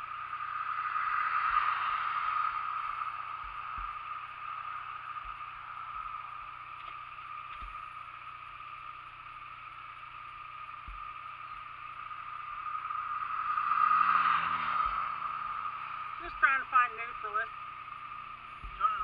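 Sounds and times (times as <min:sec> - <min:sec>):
motorcycle engine idling: 0:00.0 - 0:19.0
soft low thumps: 0:03.4 - 0:04.4, 0:05.1 - 0:08.1, 0:10.7 - 0:11.8, 0:14.8 - 0:15.1, 0:18.4 - 0:19.0.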